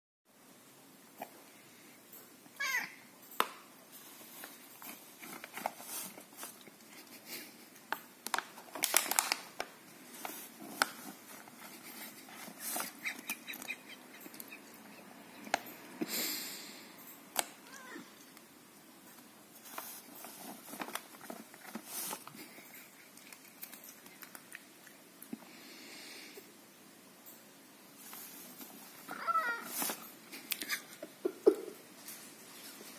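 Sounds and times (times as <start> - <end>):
cat meowing: 2.6 - 3.0, 17.6 - 18.2, 29.1 - 29.8
plastic pouch crinkling: 8.2 - 13.9.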